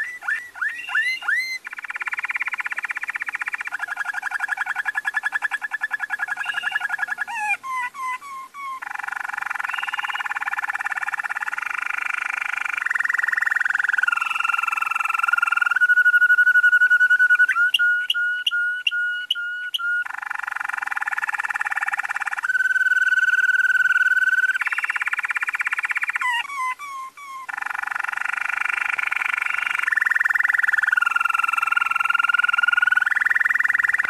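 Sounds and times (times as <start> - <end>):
canary singing: 0.0 - 34.0.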